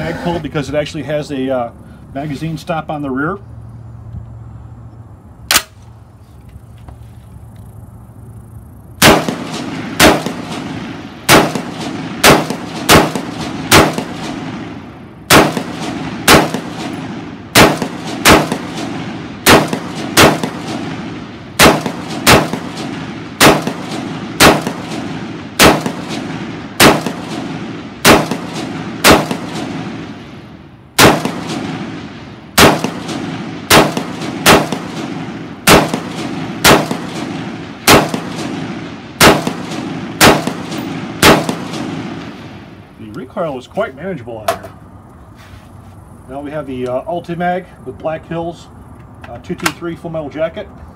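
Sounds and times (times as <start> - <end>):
rifle shots echoing: 5.5 - 5.8, 9.0 - 43.0.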